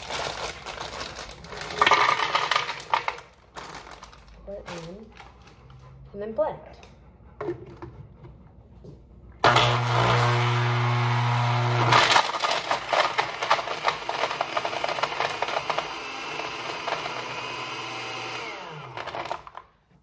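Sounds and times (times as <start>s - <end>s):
frozen chunks rattling in blender jar: 0.0s - 5.2s, 11.8s - 17.3s
blender motor hum: 9.4s - 19.6s.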